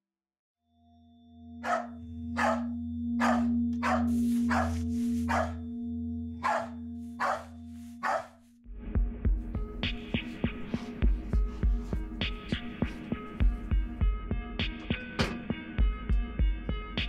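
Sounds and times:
low droning tone: 0:00.7 - 0:12.7
dog barking: 0:01.6 - 0:05.6, 0:06.4 - 0:08.4.

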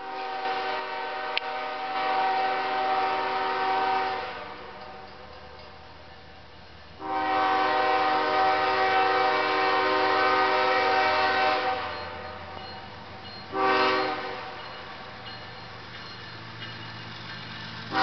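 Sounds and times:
locomotive air horn blasts: 0:00.0 - 0:05.1, 0:07.0 - 0:12.6, 0:13.5 - 0:15.0.

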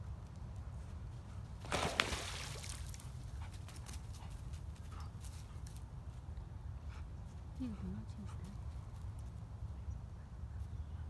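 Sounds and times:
water splash: 0:01.6 - 0:03.0.

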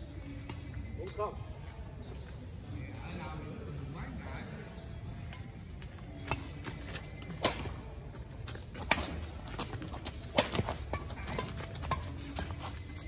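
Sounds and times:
rackets hitting shuttlecock: 0:05.3 - 0:13.0.

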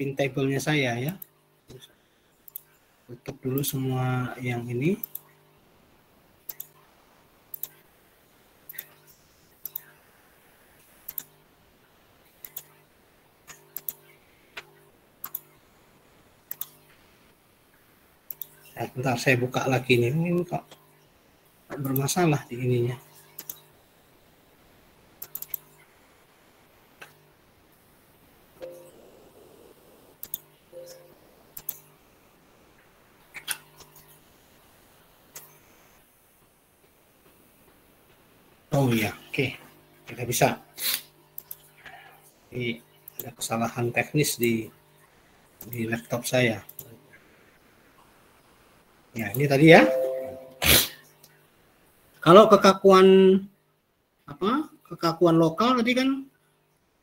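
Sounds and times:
computer mouse clicking: 0:02.4 - 0:02.7, 0:05.0 - 0:05.3, 0:06.5 - 0:06.8, 0:07.5 - 0:07.8, 0:08.7 - 0:09.0, 0:09.6 - 0:09.9, 0:11.0 - 0:11.4, 0:12.4 - 0:12.8, 0:13.5 - 0:15.5, 0:16.5 - 0:16.9, 0:18.3 - 0:18.6, 0:23.3 - 0:23.7, 0:25.2 - 0:25.8, 0:30.2 - 0:31.0, 0:31.6 - 0:31.9, 0:41.4 - 0:41.7
laptop keys and mouse clicks: 0:07.5 - 0:07.8, 0:12.4 - 0:12.8, 0:13.5 - 0:14.0, 0:14.6 - 0:15.5, 0:25.2 - 0:25.7, 0:30.2 - 0:31.9.

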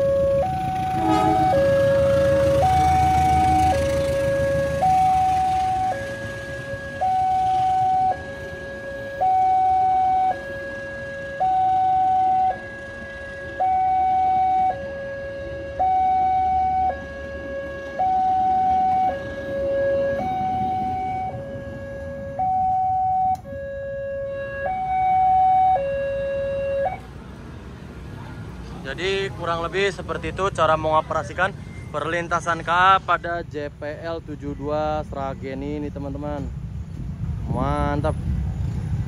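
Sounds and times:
train rumbling past: 0:00.0 - 0:06.7, 0:17.3 - 0:22.3, 0:32.3 - 0:39.0
two-tone warning siren: 0:00.0 - 0:27.2.

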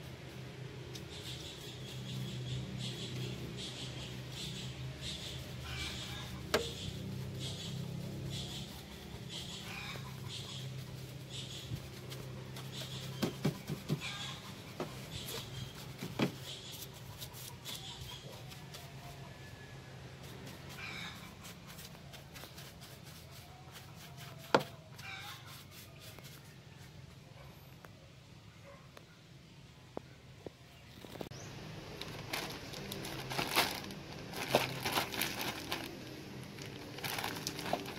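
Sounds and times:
brush scrubbing plastic and rubber: 0:00.0 - 0:19.2, 0:20.2 - 0:27.1, 0:31.9 - 0:37.9
brush knocking parts: 0:05.2 - 0:17.8, 0:21.4 - 0:26.4.

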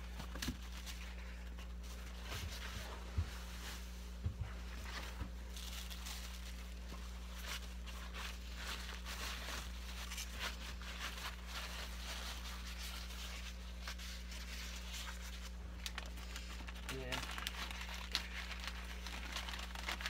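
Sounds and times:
paper towel rustling and crinkling: 0:00.0 - 0:20.0
steady low hum: 0:00.0 - 0:20.0.

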